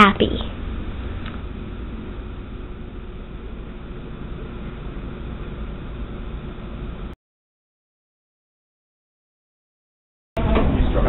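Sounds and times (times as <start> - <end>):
room noise rumble and hiss: 0.0 - 7.2.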